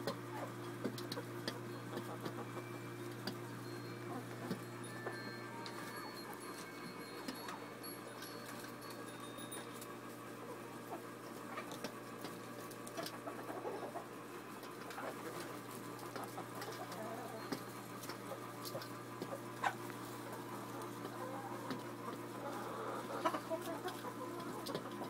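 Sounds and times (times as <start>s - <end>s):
hens pecking and scratching: 0.0s - 25.0s
steady low hum: 0.0s - 25.0s
hens clucking softly: 10.5s - 25.0s.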